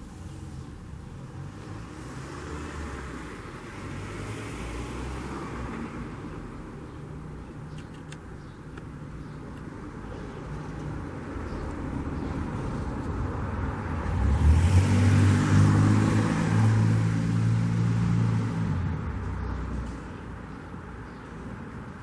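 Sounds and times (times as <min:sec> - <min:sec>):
car passing by: 0:01.3 - 0:06.5, 0:12.1 - 0:20.0.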